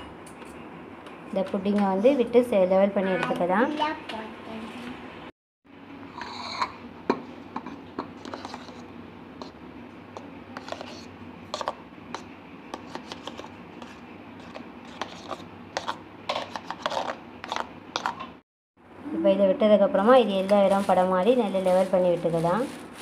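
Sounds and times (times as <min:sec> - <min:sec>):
spoon scraping steel bowl: 0:06.1 - 0:06.8, 0:07.6 - 0:09.6, 0:10.6 - 0:18.2.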